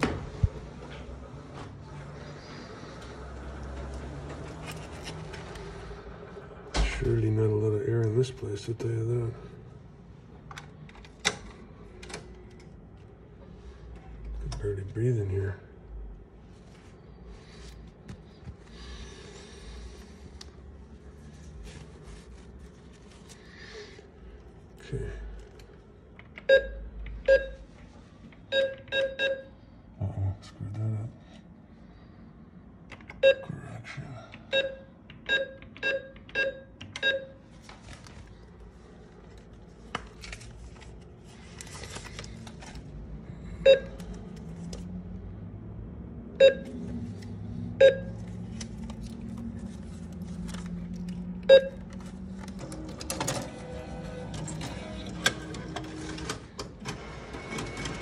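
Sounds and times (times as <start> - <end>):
low steady hum: 0.0 - 57.8.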